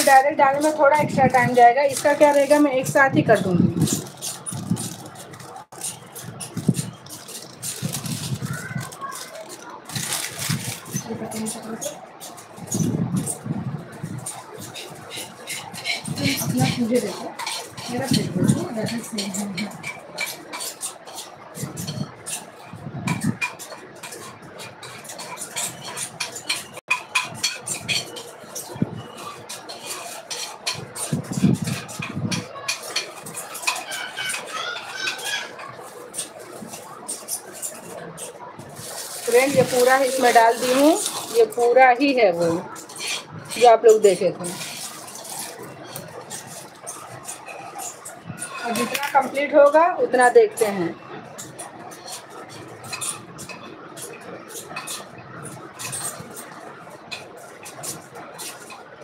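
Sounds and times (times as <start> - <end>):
plastic piping bag crinkling: 0.0 - 13.0, 31.0 - 49.6
utensils and plastic molds clinking: 0.0 - 59.0
high squeaky tones: 33.5 - 35.8.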